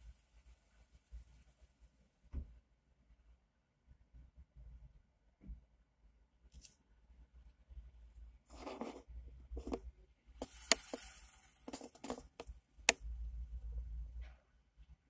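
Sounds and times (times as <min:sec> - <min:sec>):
clicks and taps: 0:09.6 - 0:09.8.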